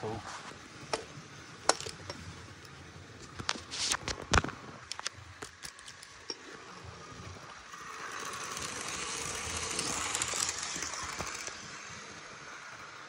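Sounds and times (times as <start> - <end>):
model train running on track: 5.7 - 13.0.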